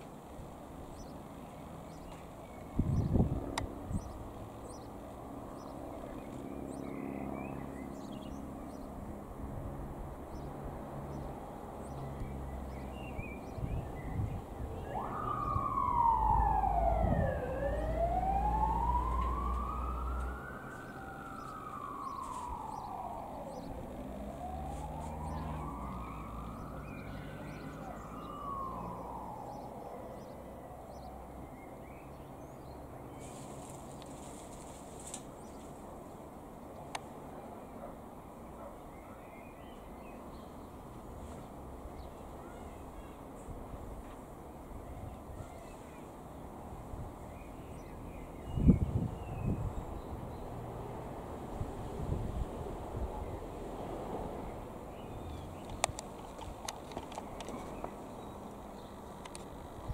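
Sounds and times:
siren wailing: 14.6s - 31.4s.

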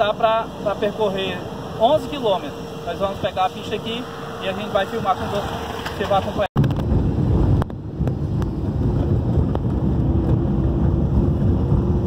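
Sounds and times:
car rumbling over rough road: 5.4s - 12.0s.

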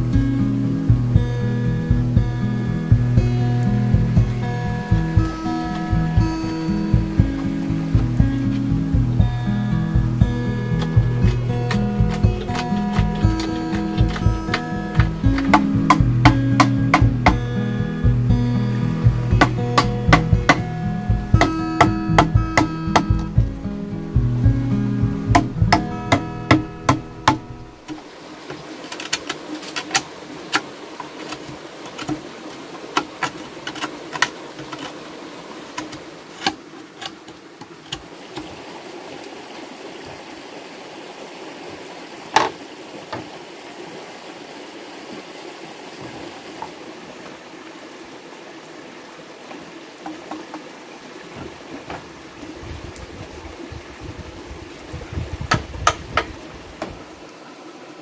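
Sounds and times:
background music: 0.0s - 27.9s
running water: 0.0s - 58.0s
blade chopping bamboo and wood: 2.9s - 9.4s, 10.0s - 24.5s, 25.1s - 35.1s, 35.7s - 38.6s
insects: 27.7s - 58.0s.

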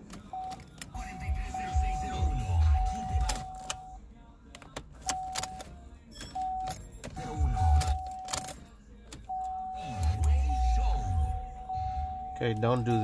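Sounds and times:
keys jangling and clicking: 0.0s - 1.0s, 2.7s - 3.8s, 4.6s - 11.8s
electronic chime tone: 9.6s - 13.0s.

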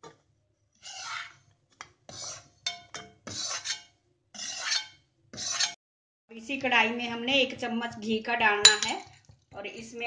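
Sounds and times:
metal spatula scraping a pan: 0.7s - 5.8s
metal clinking on a pan: 8.6s - 9.1s.

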